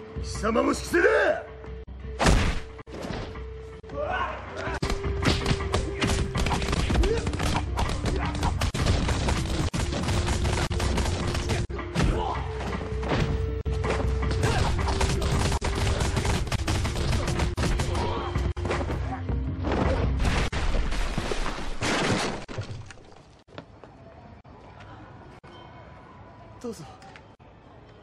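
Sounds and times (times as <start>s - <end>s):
punch and hit sound effects: 2.2s - 2.7s.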